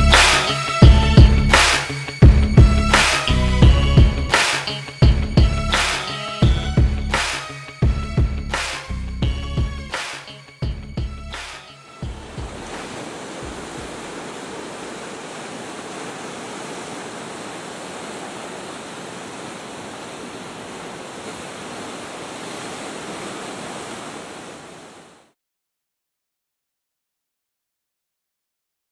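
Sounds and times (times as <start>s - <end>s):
ocean surf: 4.3s - 5.0s, 11.4s - 25.4s.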